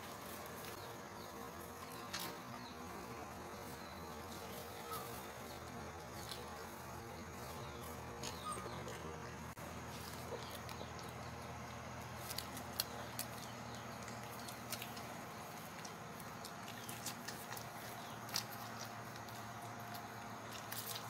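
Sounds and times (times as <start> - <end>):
steady low hum: 0.0 - 21.0
puppies suckling wet smacking: 12.5 - 21.0.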